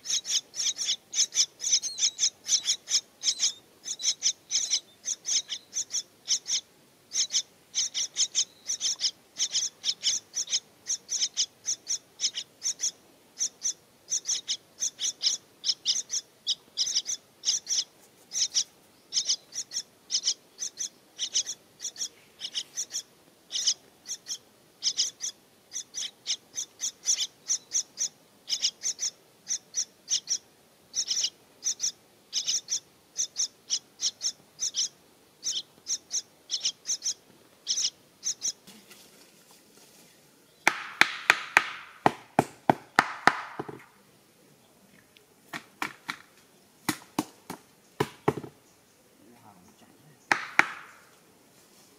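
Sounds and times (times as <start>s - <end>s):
parrot nestlings chirping: 0.0s - 38.6s.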